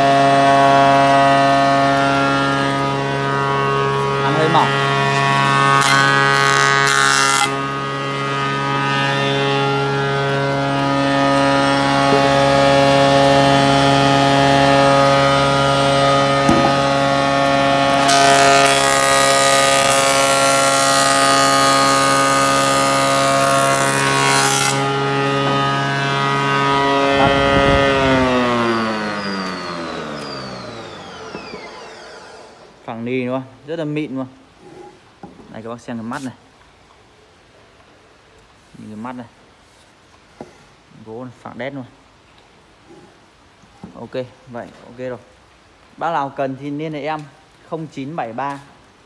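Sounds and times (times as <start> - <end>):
woodworking machine humming: 0.0 - 33.0
motor winding down: 7.4 - 32.9
wood planing hiss: 18.1 - 32.9.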